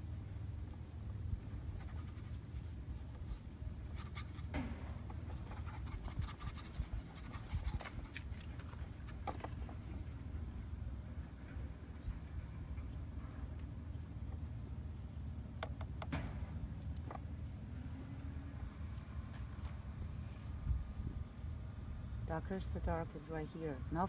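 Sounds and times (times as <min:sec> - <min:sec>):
paintbrush scratching and dabbing: 0:01.6 - 0:04.5, 0:05.2 - 0:09.2
steady low rumble: 0:16.3 - 0:24.0.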